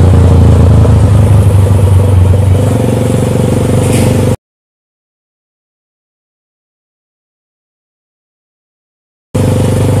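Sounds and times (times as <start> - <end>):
motorcycle engine running loudly: 0.0 - 4.4, 9.4 - 10.0.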